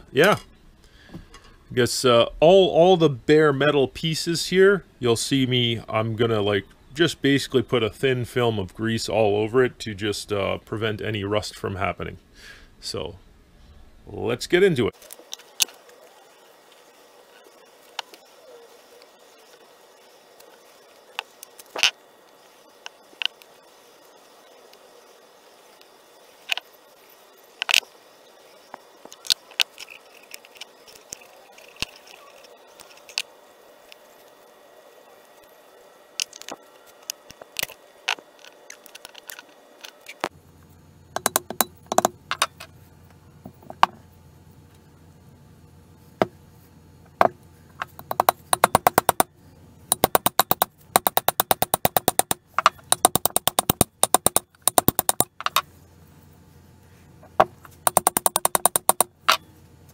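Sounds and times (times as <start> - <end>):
low steady hum: 0.0 - 59.9
metal clicks and knocks: 41.2 - 42.6, 47.2 - 49.3, 49.9 - 55.6, 57.4 - 59.4
rapid even clicking: 47.8 - 49.3, 49.9 - 55.6, 57.8 - 59.4.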